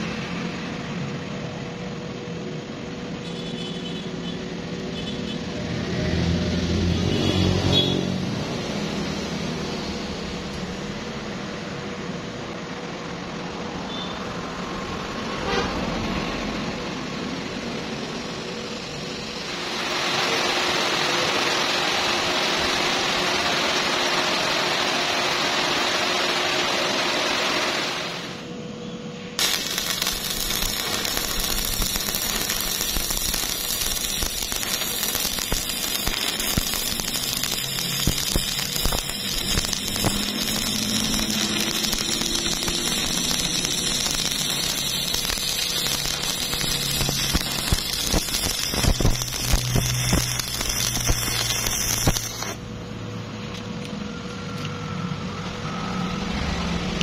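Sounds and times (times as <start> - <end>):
welding arc crackling: 17.3 - 28.5, 29.4 - 52.9.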